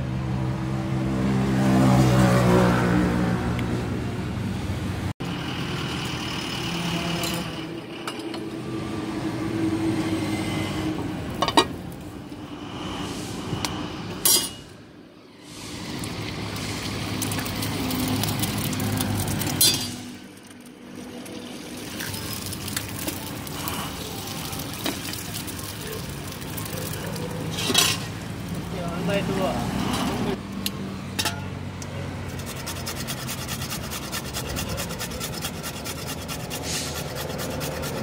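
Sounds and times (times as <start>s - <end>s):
street traffic noise: 0.0s - 38.0s.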